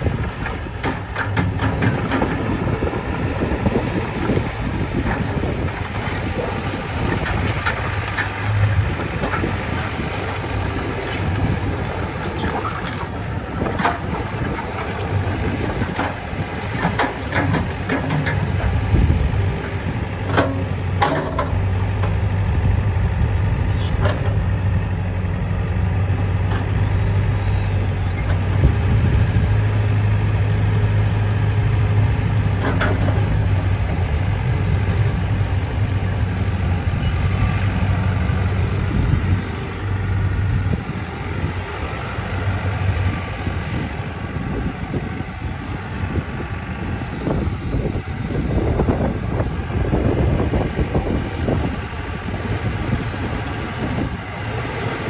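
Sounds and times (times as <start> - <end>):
excavator diesel engine droning: 0.0 - 55.0
bucket and linkage clanks: 0.4 - 2.7, 15.8 - 18.8, 20.2 - 22.2, 32.5 - 33.3.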